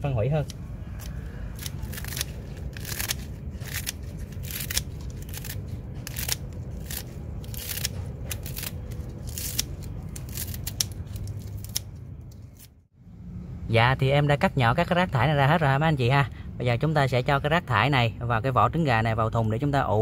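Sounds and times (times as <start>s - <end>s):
steady low hum: 0.0s - 18.7s
scissors cutting cabbage leaves: 0.4s - 12.7s.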